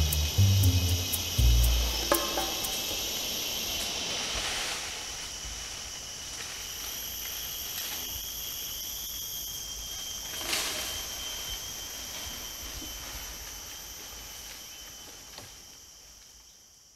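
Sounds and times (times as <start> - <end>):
even hiss: 0.0 - 5.4
high insect chorus: 0.0 - 16.9.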